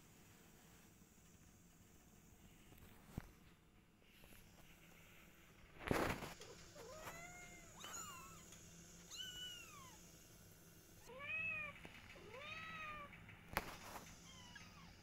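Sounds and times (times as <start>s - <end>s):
kitten meowing: 6.8s - 8.5s, 9.1s - 10.0s.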